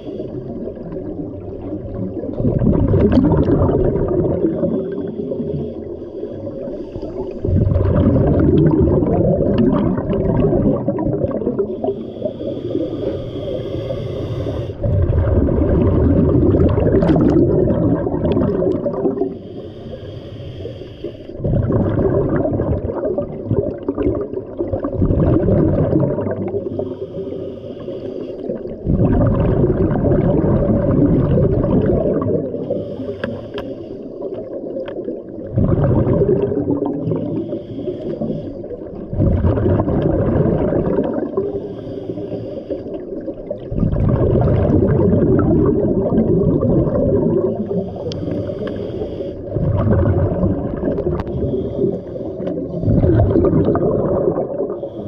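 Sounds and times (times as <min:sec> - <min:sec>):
regulator inhale hiss: 0:00.0 - 0:00.8, 0:04.7 - 0:07.5, 0:11.7 - 0:14.9, 0:19.2 - 0:21.4, 0:26.6 - 0:28.8, 0:32.6 - 0:34.6, 0:37.1 - 0:39.0, 0:41.4 - 0:43.4, 0:47.5 - 0:49.6, 0:51.0 - 0:53.1, 0:54.7 - 0:55.0
exhaled bubbles rushing: 0:00.2 - 0:05.9, 0:07.1 - 0:12.8, 0:14.7 - 0:19.4, 0:21.4 - 0:27.0, 0:28.5 - 0:32.8, 0:34.2 - 0:37.6, 0:38.2 - 0:41.7, 0:42.9 - 0:48.4, 0:49.4 - 0:54.9.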